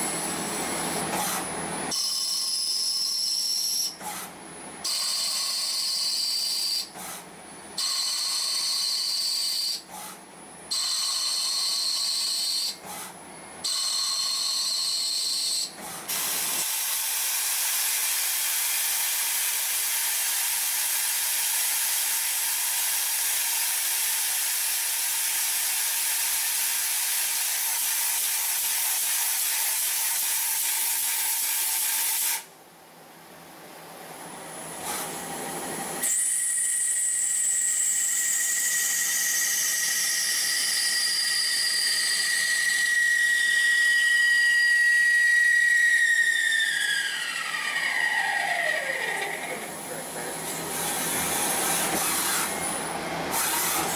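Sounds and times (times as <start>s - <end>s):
lathe cutting with high whine: 35.4s - 53.9s.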